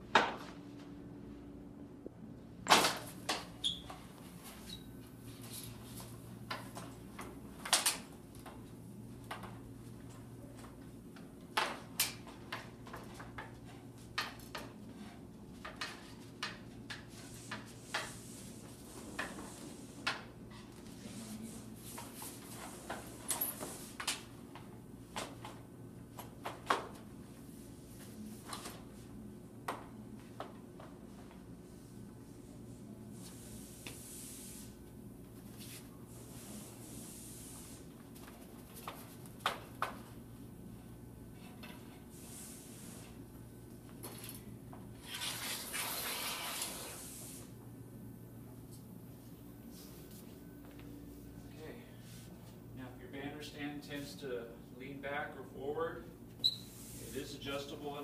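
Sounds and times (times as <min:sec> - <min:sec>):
clicks and knocks of banner stand poles: 0:02.6 - 0:04.0, 0:05.4 - 0:18.2, 0:38.2 - 0:40.2.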